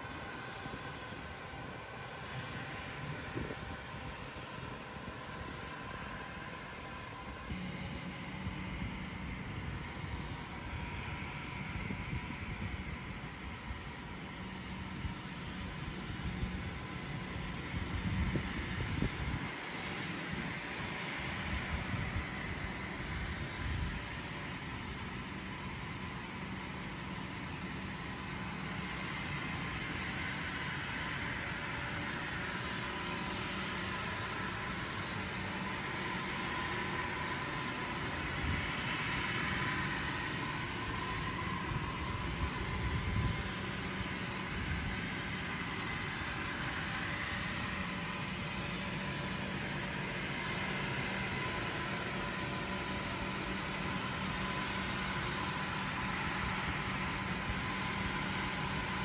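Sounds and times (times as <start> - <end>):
distant jet aircraft: 0.0 - 59.0
wind buffeting microphone: 8.6 - 13.2, 17.7 - 19.6.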